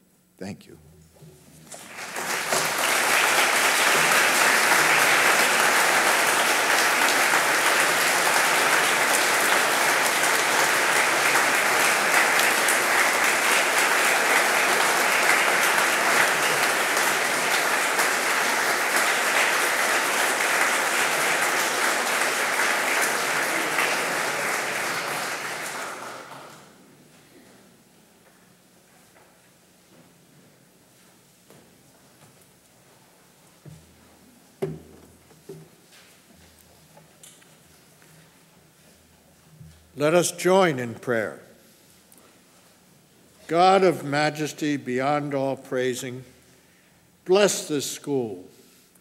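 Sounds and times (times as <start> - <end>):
audience applauding: 1.7 - 26.8.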